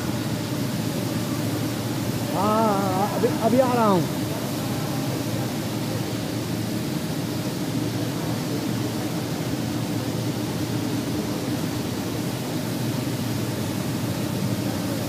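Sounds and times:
rolling mill humming: 0.0 - 15.0.

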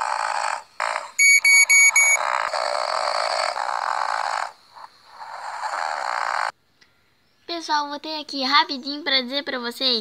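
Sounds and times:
person imitating snoring: 0.0 - 1.2, 2.2 - 6.6
short electronic beeps: 1.2 - 2.2.

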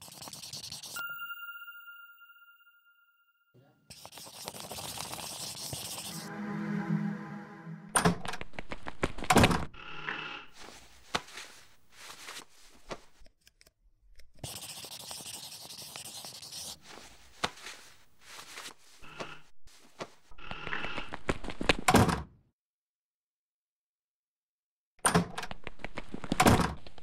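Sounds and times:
music: 1.0 - 3.8, 6.1 - 8.2.

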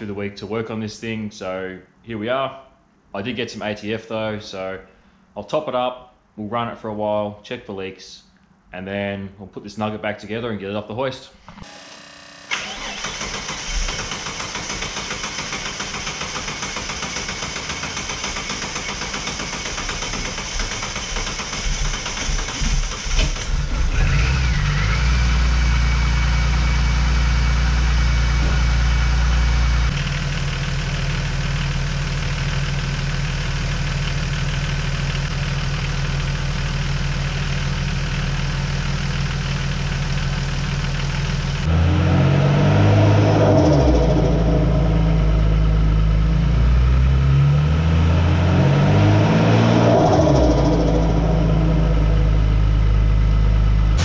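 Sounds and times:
engine whine: 11.6 - 14.6, 22.5 - 30.7, 41.5 - 54.0
car engine running: 12.5 - 54.0.

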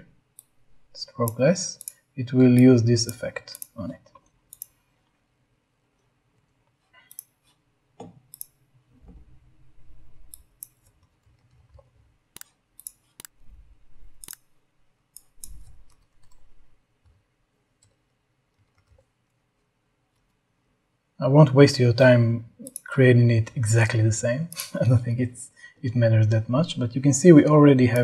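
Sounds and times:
computer mouse clicks: 1.2 - 4.8, 6.0 - 9.2, 9.9 - 14.4, 15.1 - 17.2, 22.6 - 22.9.

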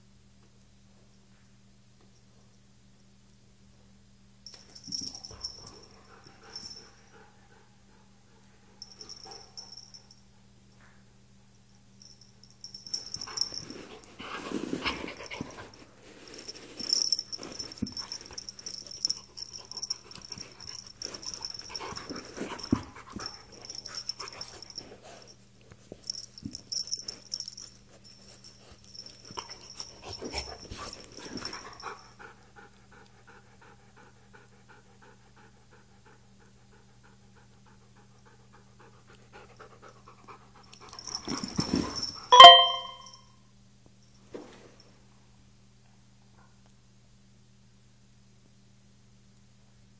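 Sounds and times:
paws scuffling on carpet: 13.2 - 18.8.

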